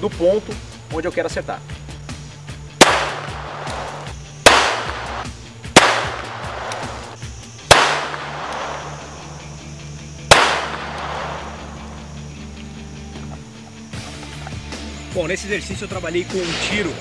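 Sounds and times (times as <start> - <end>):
pistol shots echoing: 2.8 - 9.5, 10.2 - 12.1.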